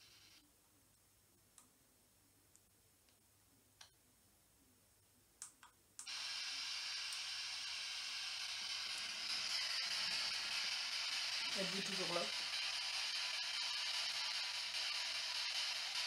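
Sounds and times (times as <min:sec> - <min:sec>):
radio static hiss: 0:00.0 - 0:00.4, 0:08.3 - 0:16.0.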